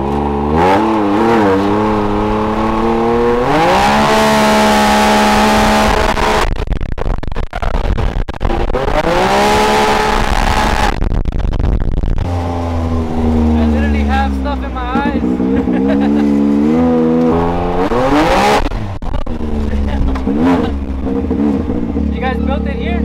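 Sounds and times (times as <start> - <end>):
turbocharged engine revving: 0.0 - 6.7, 7.6 - 11.5, 12.1 - 23.0
choppy engine rattle: 9.6 - 23.0.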